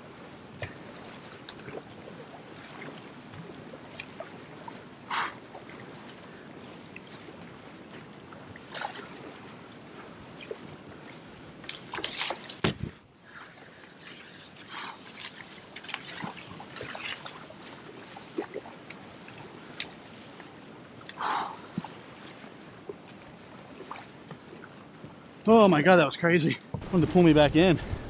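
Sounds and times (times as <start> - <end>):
paddle strokes splashing: 0.0 - 25.9
knock and splash: 11.7 - 13.0
river water rushing: 13.3 - 26.0.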